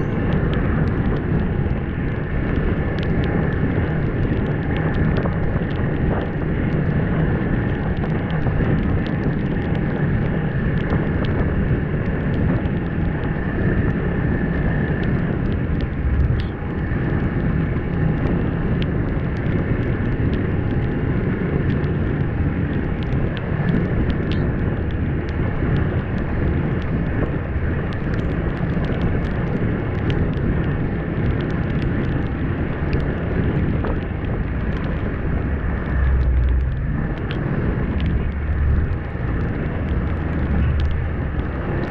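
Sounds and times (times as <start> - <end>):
small ticks: 0.0 - 41.9
wind buffeting microphone: 0.0 - 41.9.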